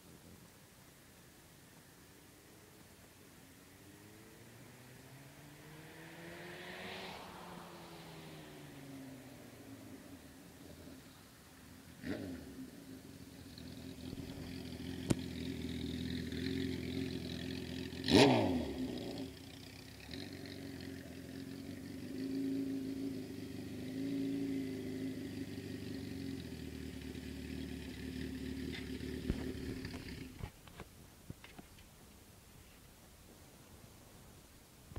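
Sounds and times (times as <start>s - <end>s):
motorcycle engine running: 9.7s - 30.6s.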